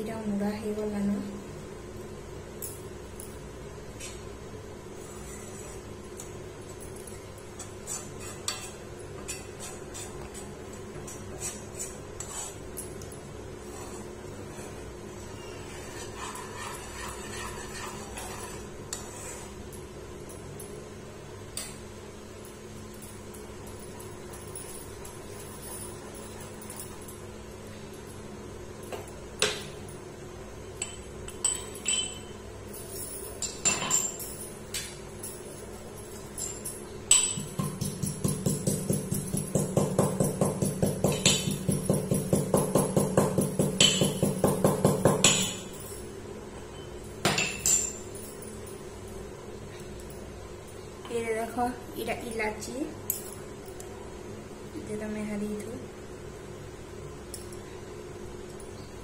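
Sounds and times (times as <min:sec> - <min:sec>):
low steady hum: 0:00.0 - 0:59.0
utensil scraping a pan: 0:13.7 - 0:19.6
metal spoon clinking on pan: 0:30.8 - 0:32.4.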